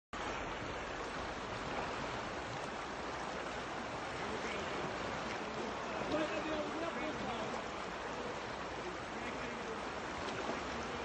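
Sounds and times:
river water rushing: 0:00.2 - 0:11.0.

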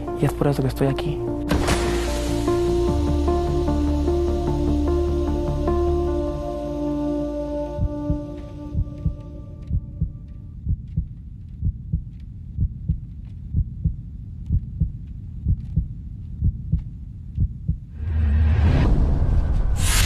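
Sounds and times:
held musical chord: 0:00.0 - 0:10.6
heartbeat double thump: 0:07.8 - 0:17.9.

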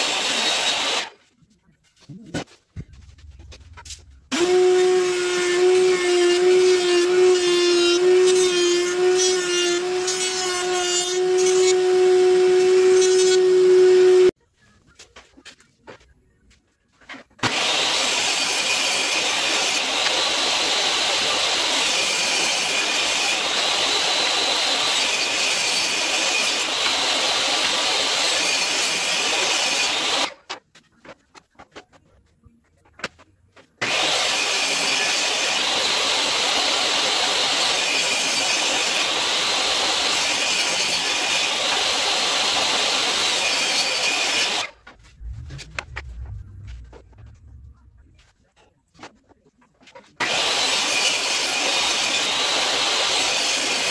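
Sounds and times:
table saw cutting boards: 0:00.0 - 0:01.2, 0:03.8 - 0:14.3, 0:17.4 - 0:30.4, 0:33.8 - 0:46.0, 0:50.2 - 0:53.9
low rumble: 0:02.8 - 0:04.3, 0:44.8 - 0:48.4.

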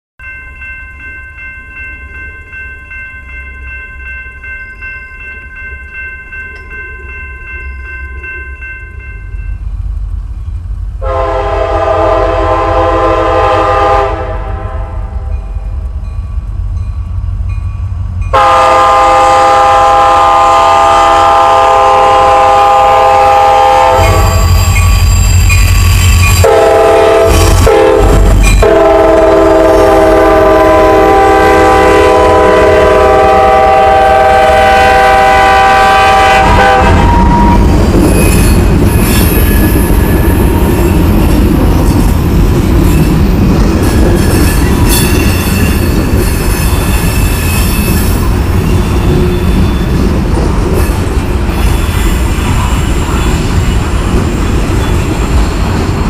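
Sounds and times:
train engine and wheels rumbling: 0:00.2 - 0:56.0
locomotive air horn: 0:11.0 - 0:15.2, 0:18.3 - 0:24.8, 0:26.4 - 0:37.7.

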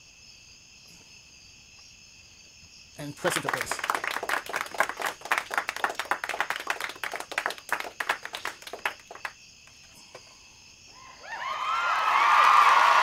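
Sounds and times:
applause: 0:03.0 - 0:09.4, 0:11.5 - 0:13.0
people clapping: 0:03.0 - 0:09.8, 0:11.4 - 0:13.0.

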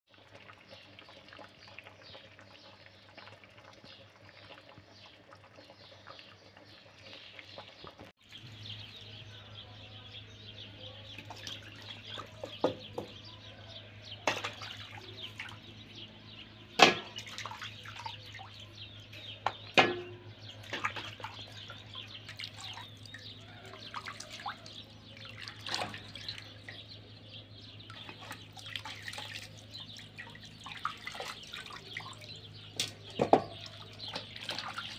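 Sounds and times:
water splashing in metal basin: 0:11.0 - 0:13.2, 0:14.0 - 0:16.0, 0:16.7 - 0:34.9.

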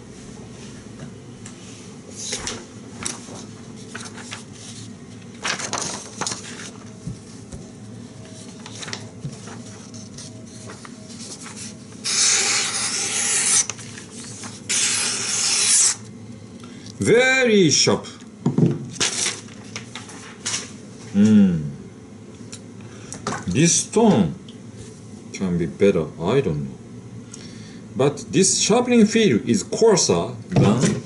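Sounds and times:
paper rustling and sliding: 0:02.1 - 0:07.5, 0:08.2 - 0:16.0, 0:19.0 - 0:20.8.

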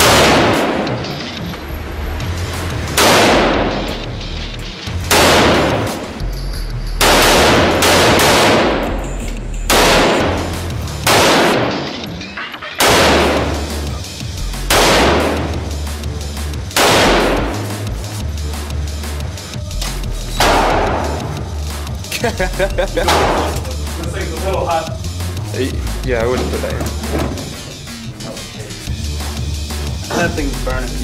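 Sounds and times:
rifle shots echoing indoors: 0:00.0 - 0:01.1, 0:03.0 - 0:04.0, 0:05.1 - 0:06.2, 0:07.0 - 0:09.0, 0:09.7 - 0:12.0, 0:12.8 - 0:13.9, 0:14.7 - 0:15.6, 0:16.7 - 0:17.6, 0:20.4 - 0:21.3.

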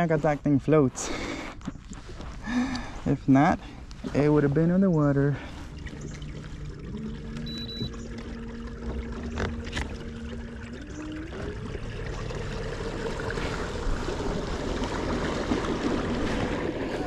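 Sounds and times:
water rushing along hull: 0:00.0 - 0:17.0
electric outboard motor whine: 0:05.5 - 0:17.0.

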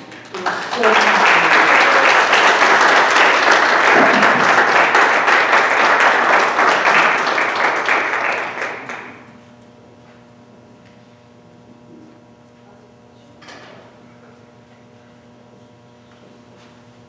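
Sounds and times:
people applauding: 0:00.0 - 0:09.3.

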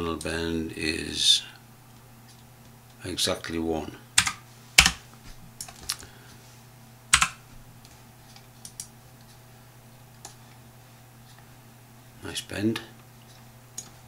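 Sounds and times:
keyboard and mouse clicks: 0:04.2 - 0:05.0, 0:07.2 - 0:07.4.

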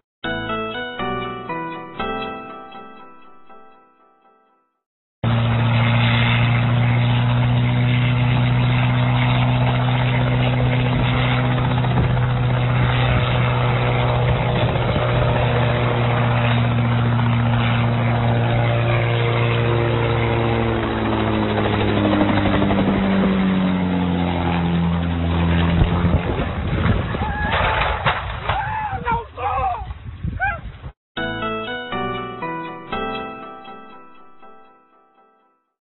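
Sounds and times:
helicopter engine and rotor: 0:05.2 - 0:26.7.

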